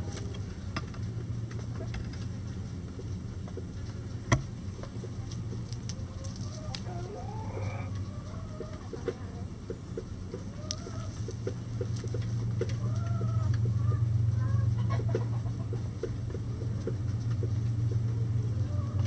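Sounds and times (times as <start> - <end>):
steady low hum: 0.0 - 19.0
hens clucking: 1.6 - 19.0
light ticks: 10.6 - 10.8.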